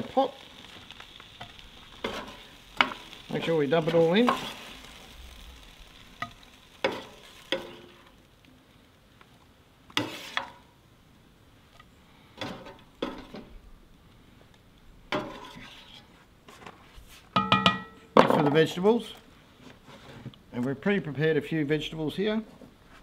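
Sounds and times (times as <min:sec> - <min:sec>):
faint sizzle: 0:00.0 - 0:23.0
spoon scraping and knocking on pans: 0:02.0 - 0:03.0, 0:06.2 - 0:08.0, 0:10.0 - 0:10.6, 0:12.4 - 0:13.5, 0:15.1 - 0:15.9, 0:17.3 - 0:18.4.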